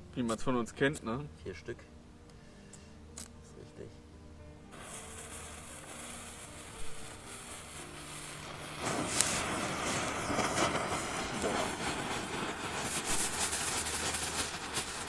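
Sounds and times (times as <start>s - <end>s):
fireworks hissing and crackling: 4.7s - 15.0s
firework sharp pop: 6.4s - 7.0s, 8.3s - 15.0s.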